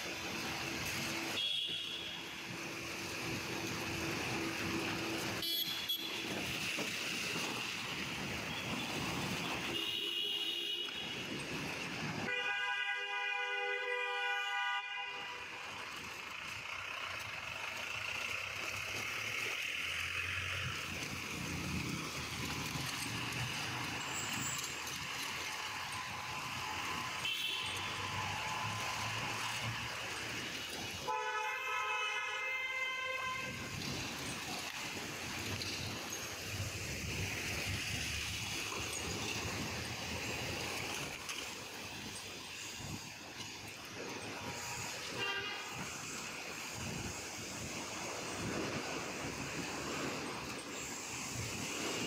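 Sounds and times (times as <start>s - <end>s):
car engines: 0.0s - 52.0s
tyres hissing on wet road: 0.0s - 52.0s
long car horn blast: 12.3s - 15.5s, 31.1s - 33.6s, 45.1s - 45.8s.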